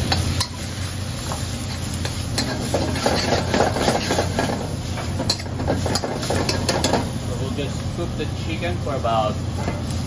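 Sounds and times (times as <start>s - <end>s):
food sizzling in a wok: 0.0s - 10.0s
metal spoon scraping a pan: 1.7s - 7.0s.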